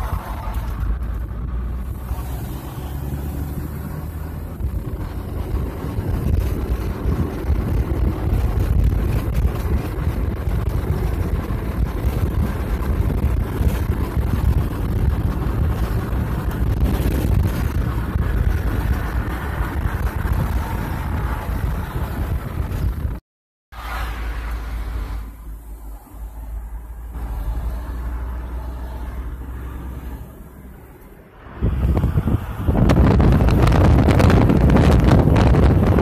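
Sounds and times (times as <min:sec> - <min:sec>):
wind buffeting on microphone: 0:00.0 - 0:23.2, 0:31.5 - 0:36.0
car tyres and engine rumble: 0:00.0 - 0:36.0.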